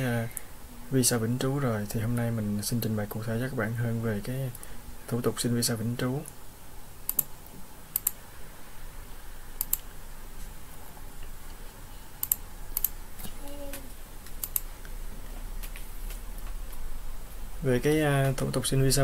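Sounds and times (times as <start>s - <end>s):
computer mouse clicks: 7.1s - 8.2s, 9.6s - 9.9s, 12.2s - 15.0s
keyboard clicks: 7.1s - 8.2s, 9.6s - 9.8s, 12.2s - 13.3s, 14.2s - 14.7s.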